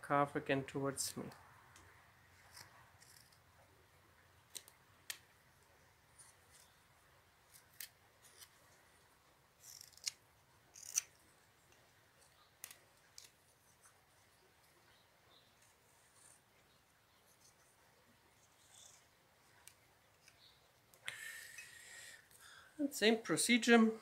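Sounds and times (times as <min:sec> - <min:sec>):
knife cutting wood shavings: 0:09.6 - 0:11.2.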